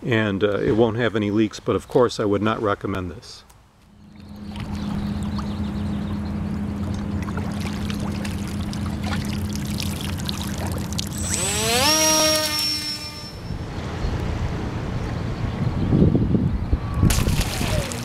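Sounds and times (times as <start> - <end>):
steady low hum: 3.8 - 18.0
electric motor and propeller whine: 3.9 - 15.0
water pouring and dripping: 6.8 - 11.3.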